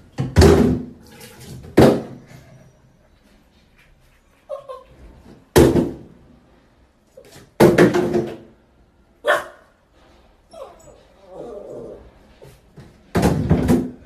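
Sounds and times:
plastic bottles clattering into tub: 0.2 - 2.2.

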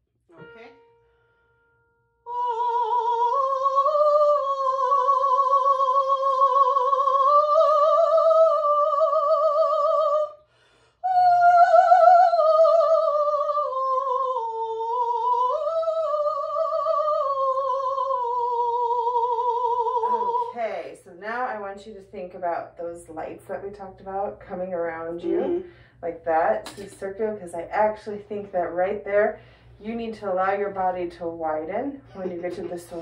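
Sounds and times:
woman singing operatic high notes: 2.3 - 10.4.

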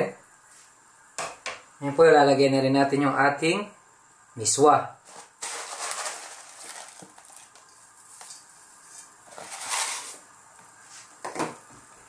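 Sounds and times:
dry noodles rustling into pot: 5.1 - 10.2.

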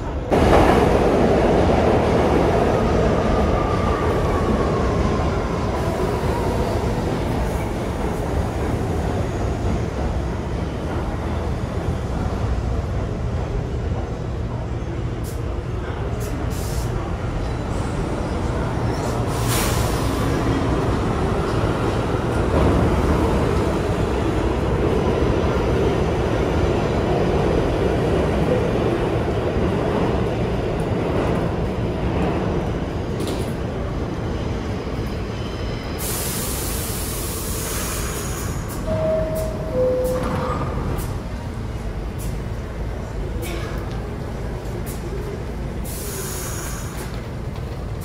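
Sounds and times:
subway train rumble: 0.0 - 48.0
hiss of air: 16.3 - 17.0, 19.3 - 20.3, 36.0 - 38.8, 45.8 - 47.1.

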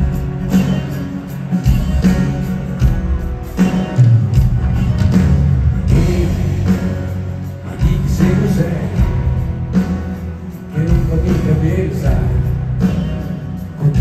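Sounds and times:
live rock band: 0.0 - 14.0
man singing: 5.9 - 9.8, 10.4 - 14.0.

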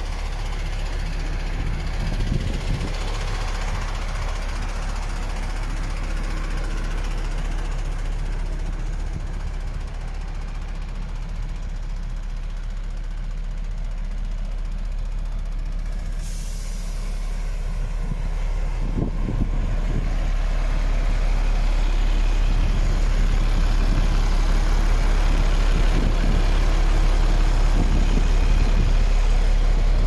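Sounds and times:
diesel engine idling: 0.0 - 30.0
compressed air hissing: 16.1 - 17.5.

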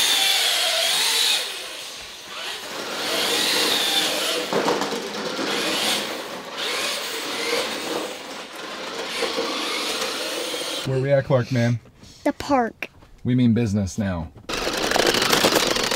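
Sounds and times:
toy car electric motors whining: 0.0 - 10.9, 14.5 - 15.9.

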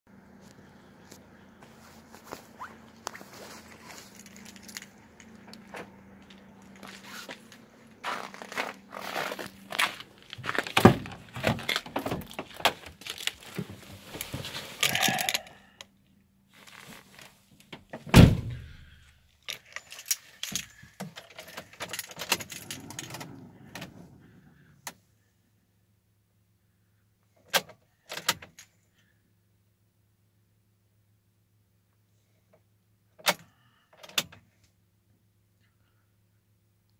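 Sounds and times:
rustling: 1.1 - 5.4, 6.4 - 15.3, 16.5 - 17.5
van door opening: 8.1 - 14.3, 17.8 - 18.8, 21.3 - 24.5
van door shutting thump: 18.1 - 18.8
keys jangling: 19.5 - 23.4.

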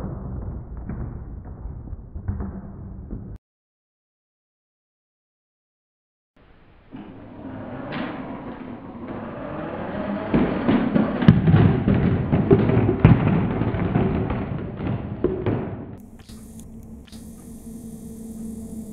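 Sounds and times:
low drone: 16.0 - 18.9.

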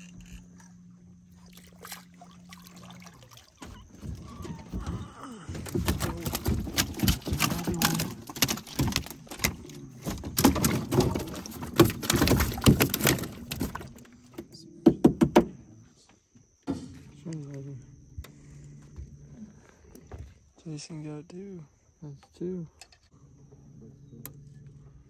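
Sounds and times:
fish thumping on metal deck: 3.9 - 13.9.

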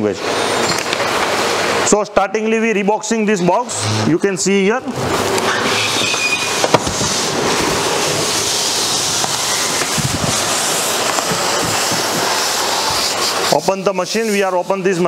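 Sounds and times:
cardboard scraping against plastic film: 5.4 - 14.6.

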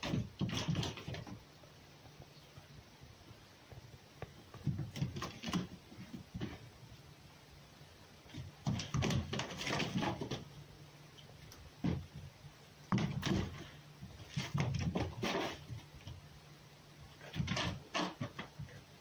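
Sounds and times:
fox scuffling on floor: 12.9 - 16.2.

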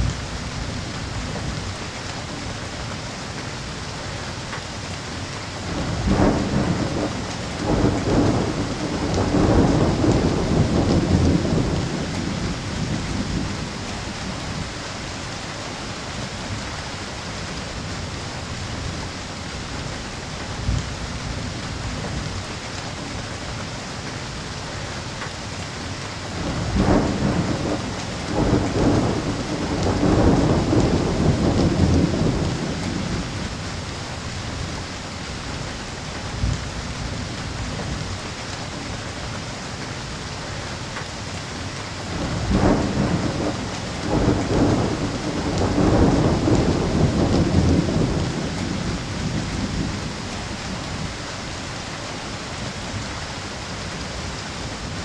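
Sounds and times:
steady rain: 0.0 - 55.0
thunder rolling: 5.7 - 14.2, 26.4 - 33.5, 42.1 - 51.1.

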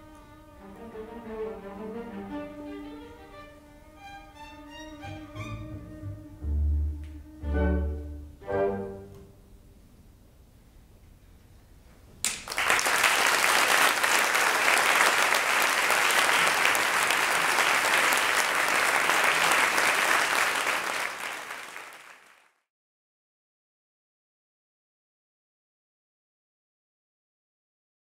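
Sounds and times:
audience applauding: 12.2 - 22.6.

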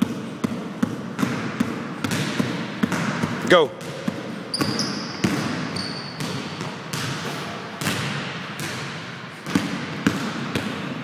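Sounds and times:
basketball bouncing on wooden floor: 0.0 - 11.0
sneaker squeak: 4.4 - 7.5.

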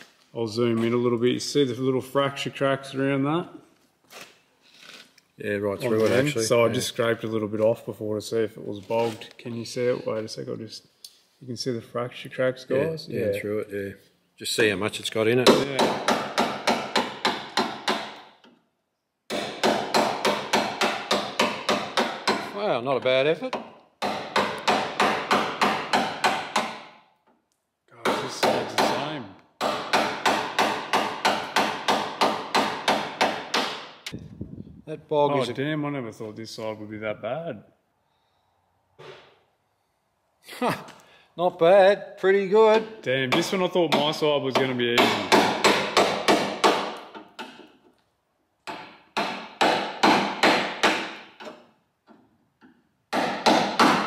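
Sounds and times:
hammer striking chisel: 15.4 - 18.6, 19.3 - 22.6, 23.5 - 27.0, 28.0 - 34.1, 42.7 - 47.8, 48.7 - 54.0.

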